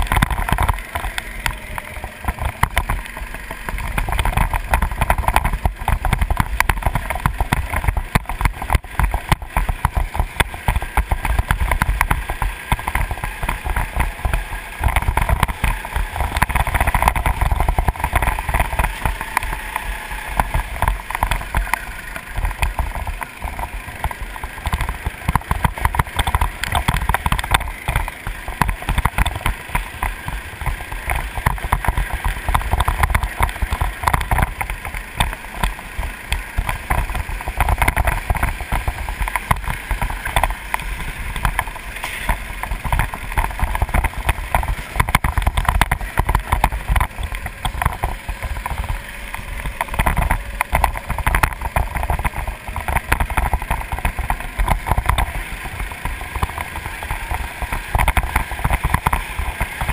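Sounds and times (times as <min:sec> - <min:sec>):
go-kart engine running: 0:00.0 - 0:59.9.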